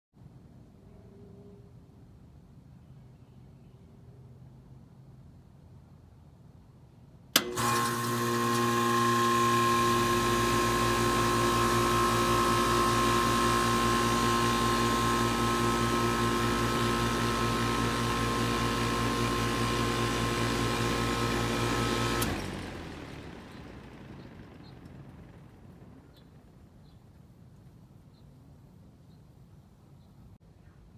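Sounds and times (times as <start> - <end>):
contactor click: 7.3 - 10.2
compressor humming: 7.3 - 26.2
condenser fan rushing: 7.3 - 26.7.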